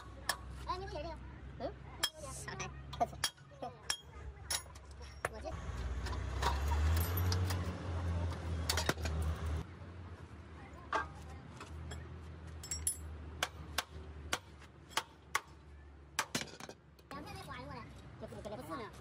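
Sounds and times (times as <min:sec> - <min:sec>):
hammer striking steel: 0:12.7 - 0:15.6.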